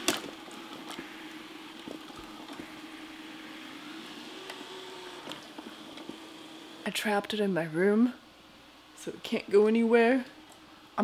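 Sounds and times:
robot vacuum motor hum: 0:00.0 - 0:07.3.

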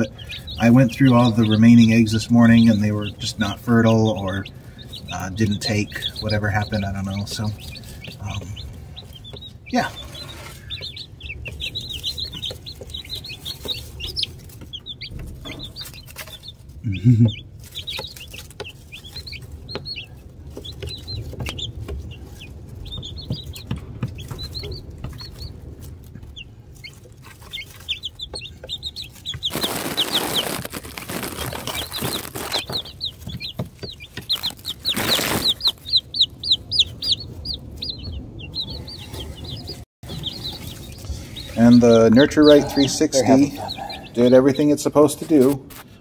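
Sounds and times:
chicks peeping: 0:00.0 - 0:46.0
rustling noise: 0:17.5 - 0:37.8, 0:45.0 - 0:46.0.

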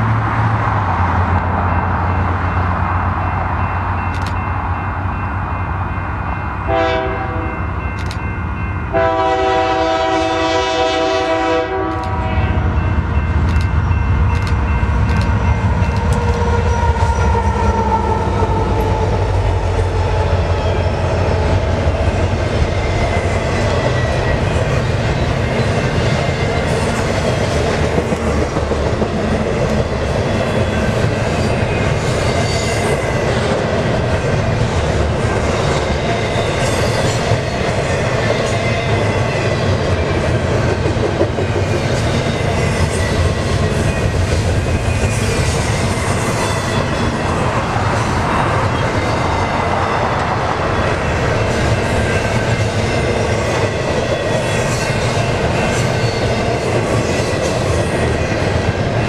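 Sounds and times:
train rumbling past: 0:00.0 - 0:59.0
train wheels clickety-clack on rails: 0:00.0 - 0:59.0
locomotive air horn blasts: 0:06.7 - 0:07.6, 0:08.9 - 0:12.7.

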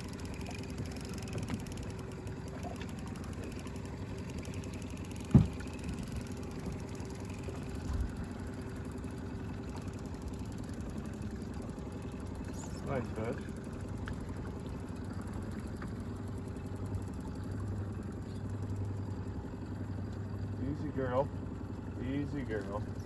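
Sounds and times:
outboard motor idling: 0:00.0 - 0:23.0
soft thump: 0:05.3 - 0:05.6.

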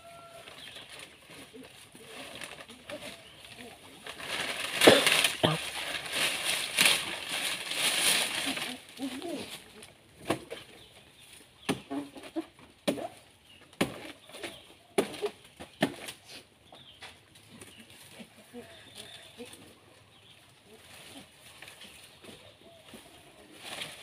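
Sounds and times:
dry leaves rustling and crackling: 0:00.0 - 0:10.2, 0:17.3 - 0:24.0.

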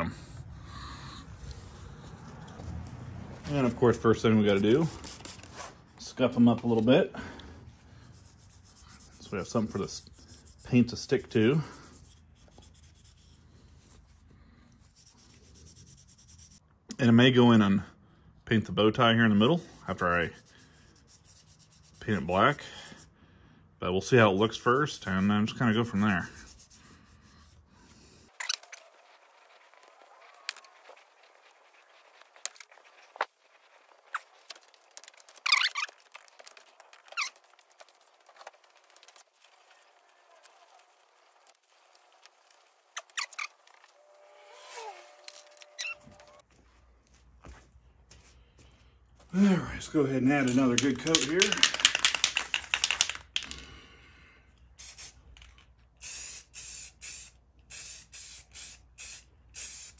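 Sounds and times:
plastic squeaks and rubbing: 0:28.3 - 0:46.4
spray can ball rattling: 0:50.4 - 0:53.6, 0:54.8 - 0:59.9
spray paint hissing bursts: 0:54.8 - 0:55.2, 0:56.0 - 0:59.9.

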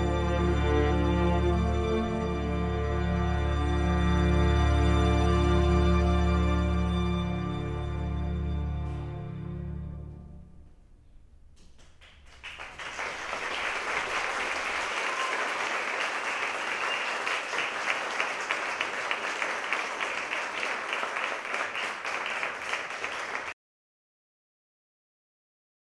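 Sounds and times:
audience applause: 0:11.8 - 0:23.6.

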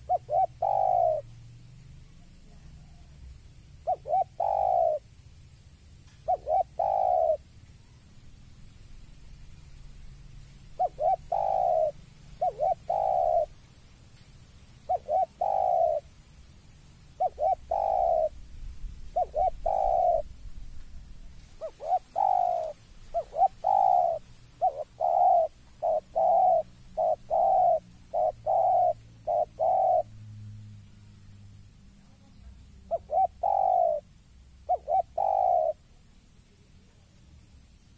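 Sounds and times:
dove cooing: 0:00.0 - 0:01.4, 0:03.8 - 0:05.1, 0:06.1 - 0:08.0, 0:10.6 - 0:13.6, 0:14.8 - 0:16.1, 0:17.1 - 0:18.4, 0:19.0 - 0:20.4, 0:21.4 - 0:30.1, 0:32.0 - 0:36.0.

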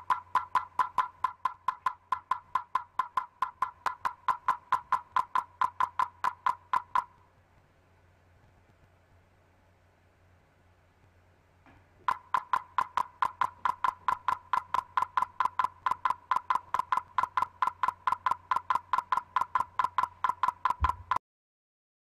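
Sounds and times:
base station clicking: 0:11.7 - 0:21.2.

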